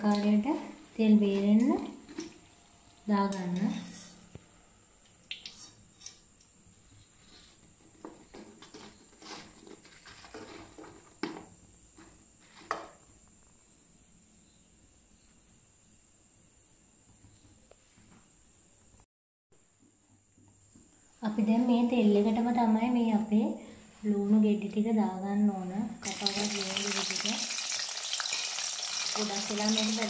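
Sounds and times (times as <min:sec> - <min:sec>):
fried pieces clattering onto paper: 0:26.0 - 0:30.0.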